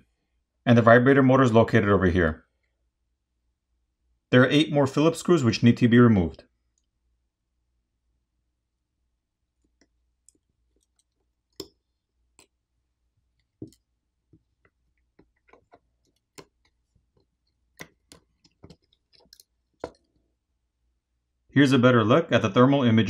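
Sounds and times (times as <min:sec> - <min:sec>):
small clicks and taps: 0:09.6 - 0:12.6, 0:13.3 - 0:20.3.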